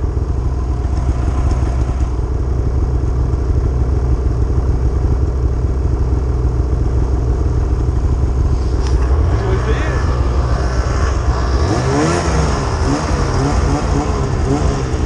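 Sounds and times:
snowmobile engine idling: 0.0s - 15.0s.

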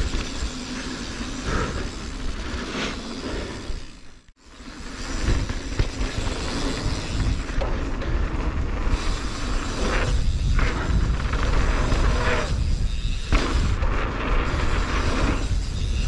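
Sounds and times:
bike tyres on dirt trail: 0.0s - 16.0s
wind buffeting microphone: 8.6s - 16.0s.

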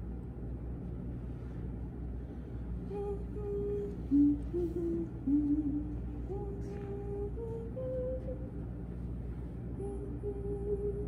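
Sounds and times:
low room hum: 0.0s - 11.0s
woman humming a slow tune: 2.8s - 8.6s, 9.7s - 11.0s.

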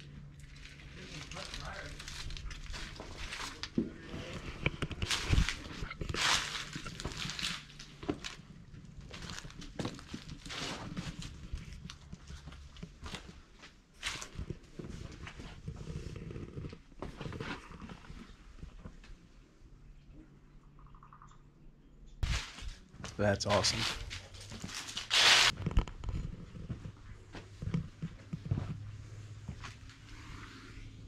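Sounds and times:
footsteps crunching on dry leaves: 5.0s - 8.4s.

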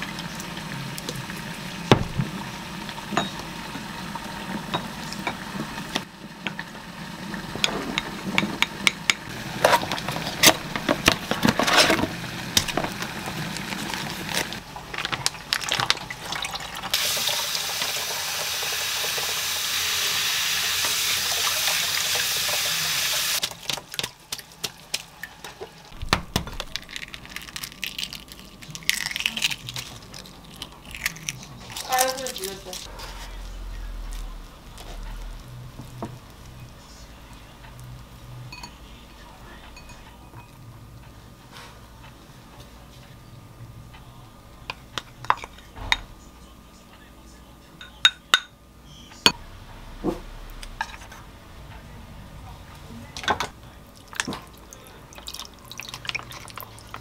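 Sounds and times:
spoon clinking in ceramic bowl: 3.2s - 3.4s
eggshell crackling: 23.4s - 32.9s, 53.9s - 57.0s.

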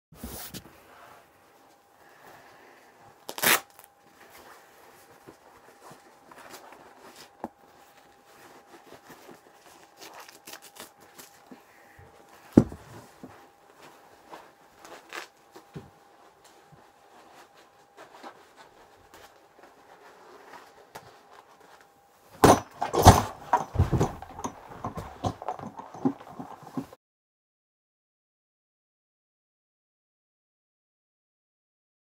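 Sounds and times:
faint steady hum: 0.2s - 27.0s
loud short thumps: 22.4s - 26.8s
light rustling: 22.4s - 27.0s.

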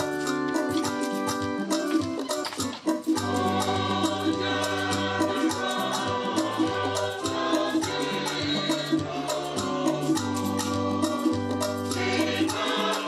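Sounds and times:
keyboard chords: 0.0s - 13.0s
rattle shaken in rhythm: 0.0s - 13.0s
choir singing: 3.2s - 13.0s.

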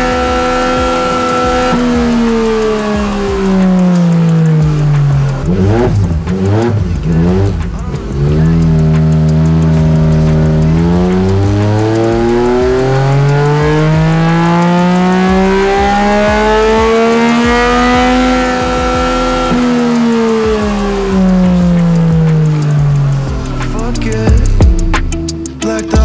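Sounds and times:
motorcycle engine revving on dynamometer: 0.0s - 23.4s.

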